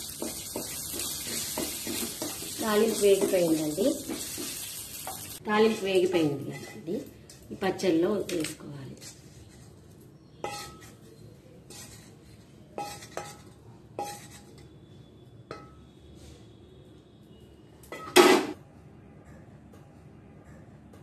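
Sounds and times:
wooden spatula knocking metal pan: 0:00.0 - 0:04.6.

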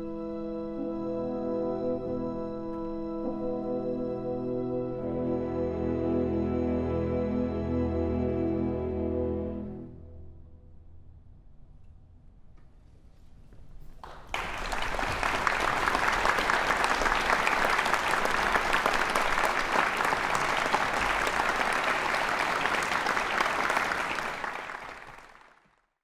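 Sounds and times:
audience applauding: 0:14.0 - 0:25.9.

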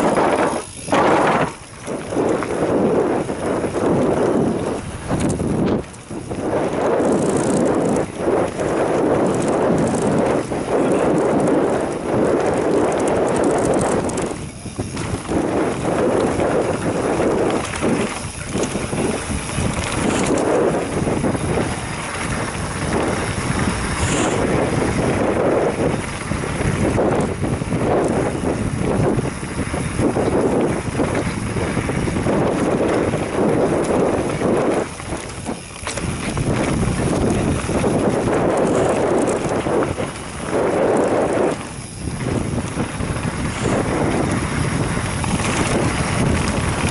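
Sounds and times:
bike rattling: 0:00.0 - 0:46.9
tyres rumbling on dirt: 0:00.0 - 0:46.9
wind buffeting microphone: 0:00.0 - 0:46.9.

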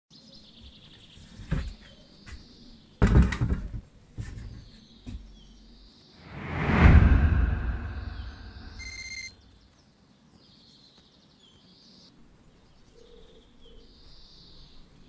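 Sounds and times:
rising whoosh: 0:06.2 - 0:09.3.

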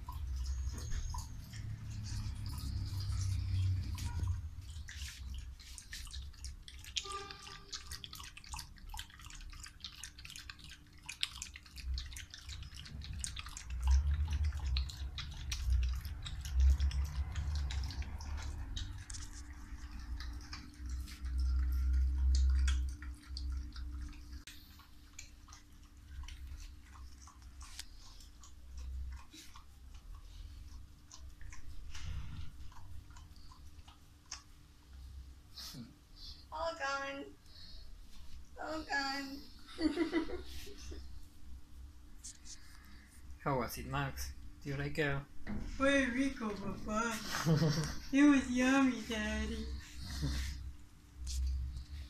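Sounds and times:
dog lapping milk: 0:00.0 - 0:35.0.

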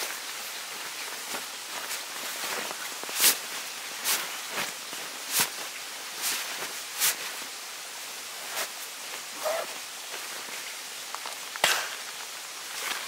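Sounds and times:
steady background hiss: 0:00.0 - 0:13.0
nylon gear rustling and snapping: 0:00.7 - 0:07.5, 0:08.4 - 0:13.0.

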